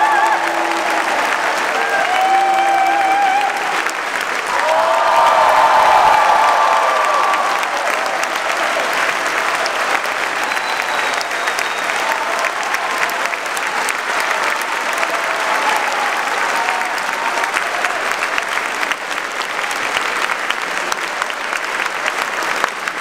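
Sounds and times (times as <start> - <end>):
audience applauding: 0.0 - 23.0.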